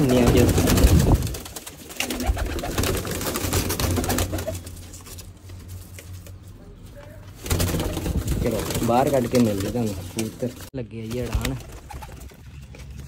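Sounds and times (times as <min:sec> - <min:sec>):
pigeons cooing: 0:00.0 - 0:05.0.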